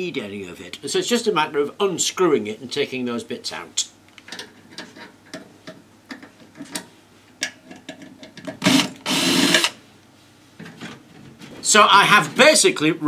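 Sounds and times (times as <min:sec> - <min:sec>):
drill running: 0:08.6 - 0:09.8.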